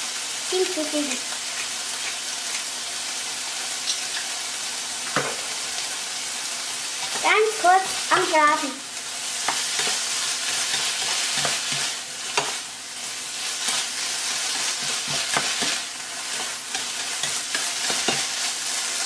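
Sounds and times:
vegetables sizzling in oil: 0.0s - 19.0s
spatula scraping a pan: 9.2s - 18.8s.

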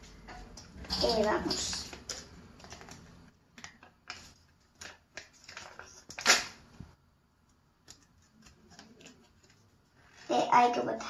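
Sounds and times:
packet crinkling and tearing: 0.9s - 6.6s.

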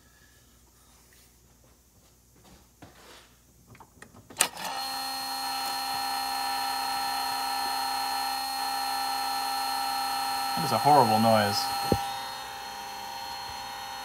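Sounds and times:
throttle actuator high-pitched whining buzz: 4.4s - 14.0s.

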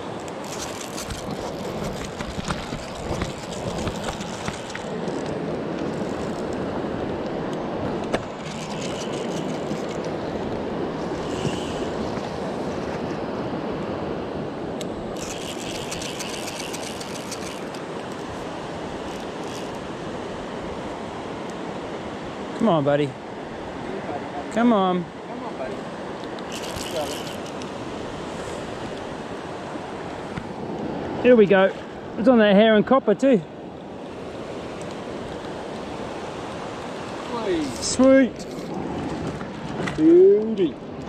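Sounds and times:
river water rushing: 0.0s - 41.0s
fishing reel ticking: 0.2s - 6.6s, 8.3s - 10.1s, 14.8s - 18.3s, 19.0s - 19.8s, 26.4s - 27.8s.

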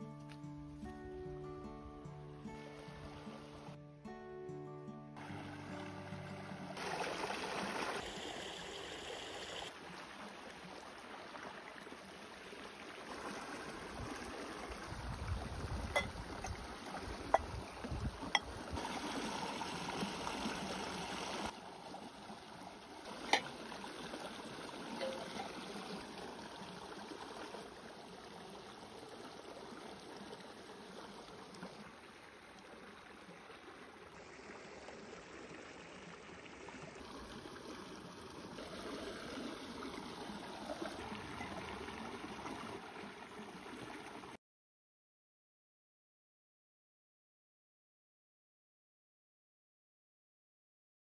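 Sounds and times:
stream trickling over rocks: 5.2s - 44.4s.

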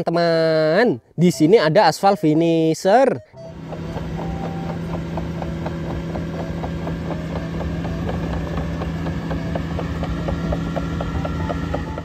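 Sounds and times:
diesel engine humming: 3.2s - 12.0s
rapid clicking: 3.5s - 12.0s.

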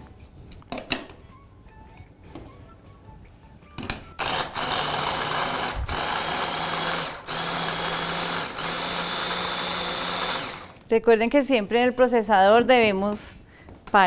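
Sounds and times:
hand blender motor chopping: 4.2s - 10.8s.

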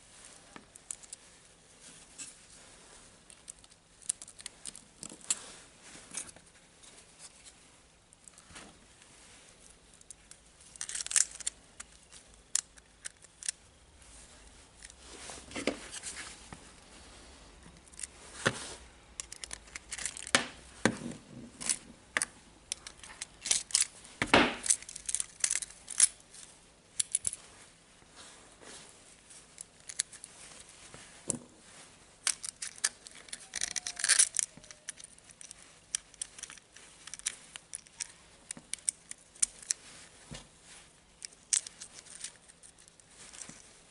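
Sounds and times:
work gloves rustling: 0.0s - 43.9s
small metal gears clicking and scraping: 3.3s - 5.4s, 9.6s - 13.7s, 19.2s - 20.4s, 22.7s - 24.0s, 24.6s - 27.4s, 29.5s - 30.3s, 32.2s - 39.8s, 41.2s - 43.7s.

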